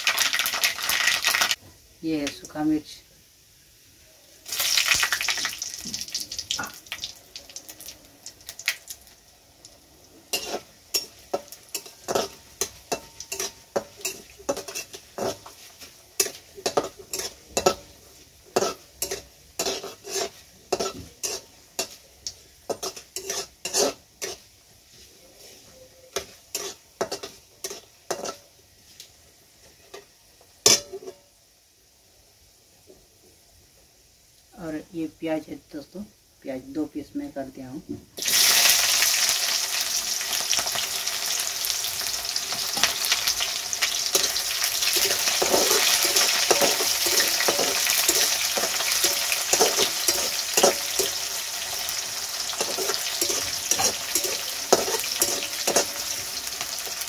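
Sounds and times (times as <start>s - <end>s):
chillies sizzling in hot oil: 0.0s - 57.0s
metal spatula scraping a pan: 10.3s - 22.0s, 22.7s - 29.0s, 42.0s - 57.0s.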